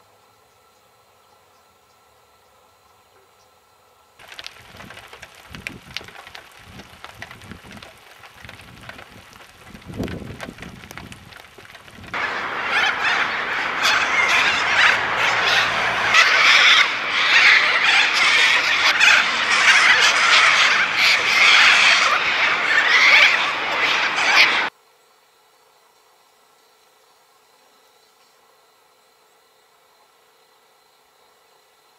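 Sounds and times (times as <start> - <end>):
flock of birds screeching: 4.2 - 24.7.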